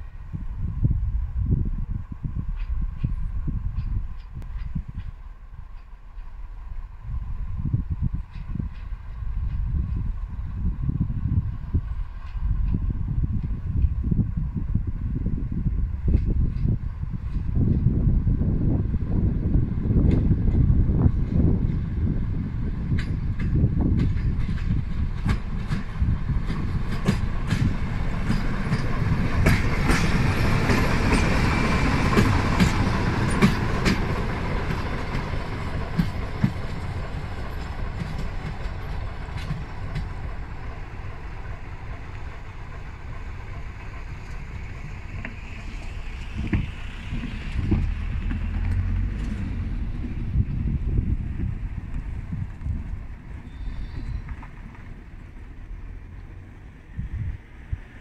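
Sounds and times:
diesel locomotive rumble: 0.0 - 58.0
wind buffeting microphone: 0.0 - 58.0
wheels clicking over rail joints: 22.8 - 56.6.

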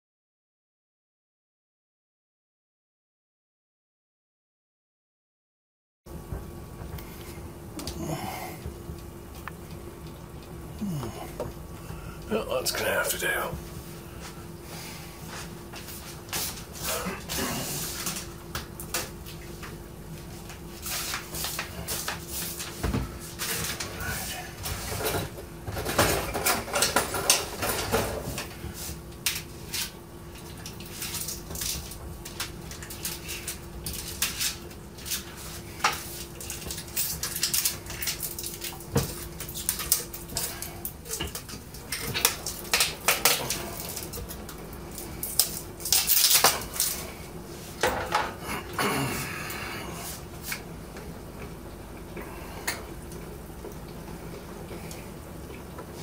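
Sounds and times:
faint steady hum: 6.1 - 56.0
plastic buckets and utensils clattering: 20.9 - 28.6.

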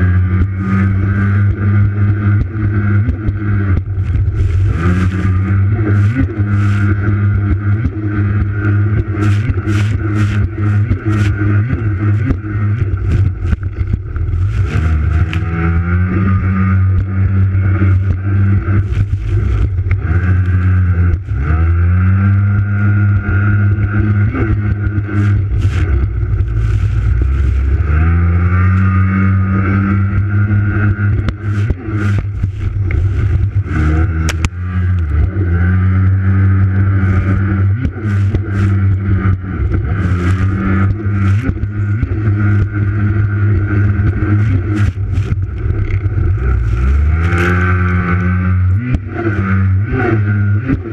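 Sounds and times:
jet ski engine revving: 0.0 - 50.9
water hitting hull: 3.2 - 7.2, 7.8 - 15.6.

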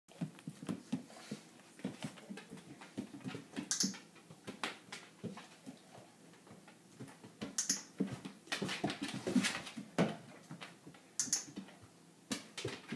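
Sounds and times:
dog claws clicking on floor: 1.8 - 5.8.

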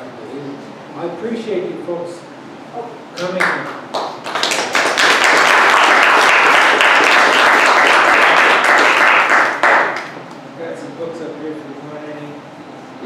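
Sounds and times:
audience applauding: 3.4 - 10.2.

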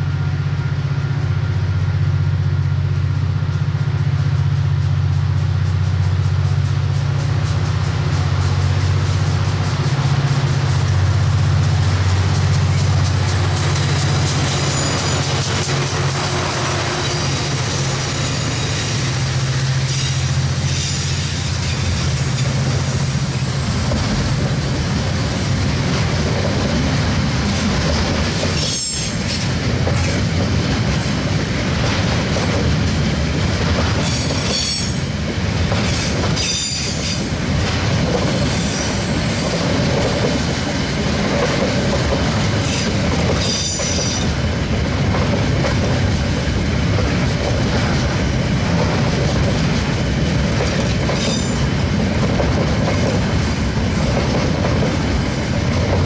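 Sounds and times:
diesel locomotive engine drone: 0.0 - 56.0
wagons rolling on rails: 4.8 - 56.0
high wheel squeals: 7.4 - 22.6, 35.8 - 37.3.

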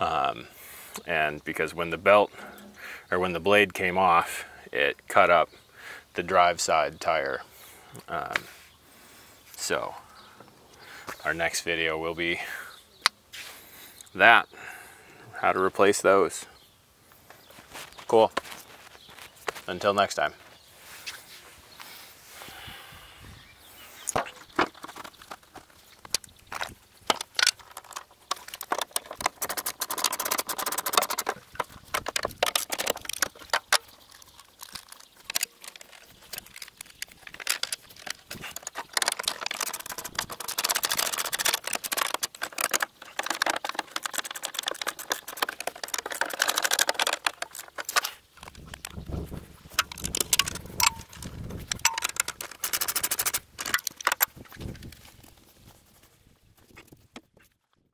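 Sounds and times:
rustling: 17.1 - 22.5, 23.8 - 57.9
clicks and metal clatter: 24.1 - 55.4.

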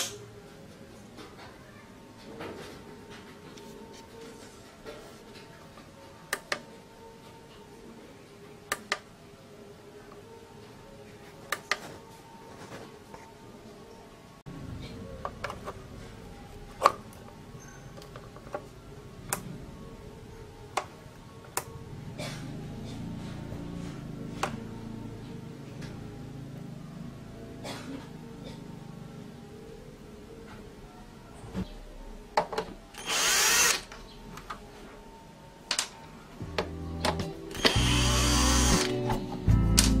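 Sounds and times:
cordless drill spinning: 33.0 - 33.9, 37.5 - 38.9.

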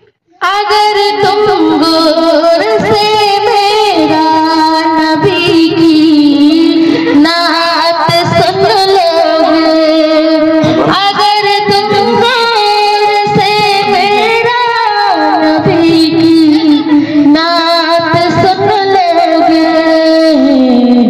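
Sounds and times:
high solo voice singing: 0.3 - 21.0.

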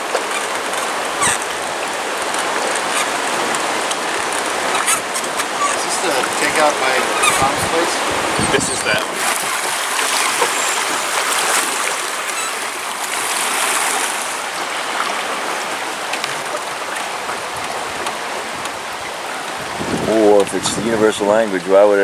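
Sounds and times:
river water rushing: 0.0 - 22.0.

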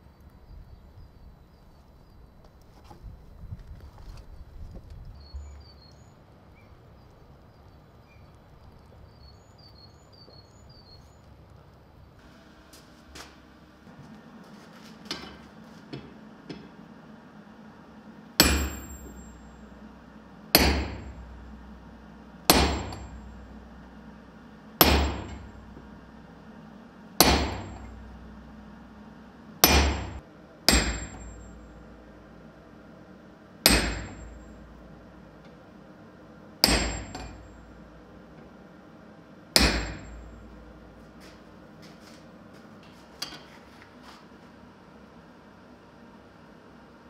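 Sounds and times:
sledgehammer clanging on metal: 18.4 - 19.7, 22.5 - 23.6, 24.8 - 25.9, 29.6 - 31.8, 36.6 - 37.7.

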